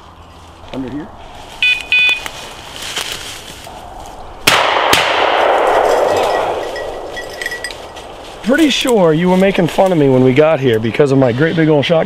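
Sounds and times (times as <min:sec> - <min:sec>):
beeper collar beep: 0:01.6 - 0:02.3
shotgun shots: 0:04.4 - 0:06.7.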